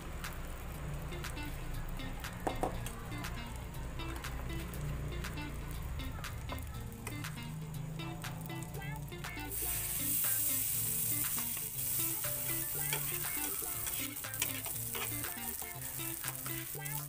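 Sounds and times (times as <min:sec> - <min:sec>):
butter sizzling in frying pan: 0:00.0 - 0:17.0.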